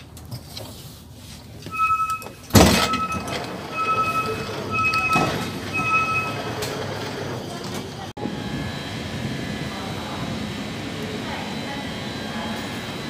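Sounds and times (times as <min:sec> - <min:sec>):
train door beeping: 0:01.6 - 0:08.1.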